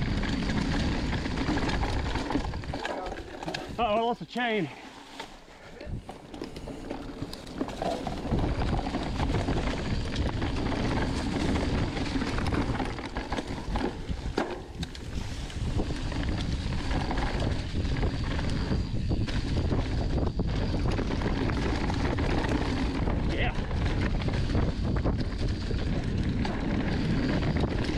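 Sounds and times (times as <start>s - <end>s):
wind rushing over microphone: 0.0s - 2.8s, 6.8s - 27.9s
bike tyres rolling over dirt: 0.0s - 27.9s
bike knocks and rattles: 6.0s - 27.9s.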